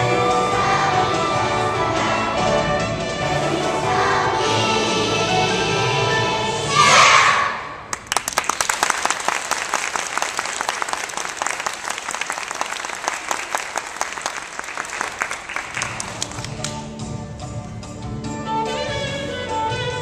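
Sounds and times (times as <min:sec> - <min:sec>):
children's choir singing: 0:00.0 - 0:07.8
audience applauding: 0:07.9 - 0:16.8.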